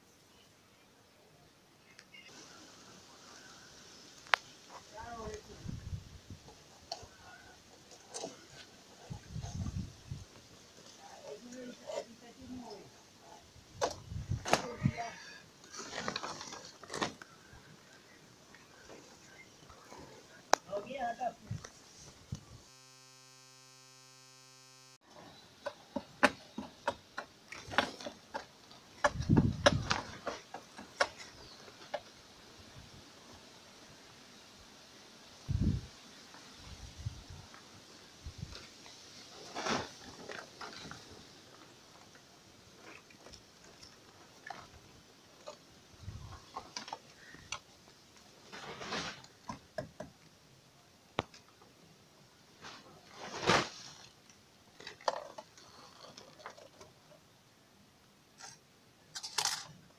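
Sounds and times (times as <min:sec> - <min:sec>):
rustling: 0:02.2 - 0:23.9, 0:35.4 - 0:49.7, 0:52.4 - 0:57.2
steady buzzing tone: 0:22.3 - 0:25.0.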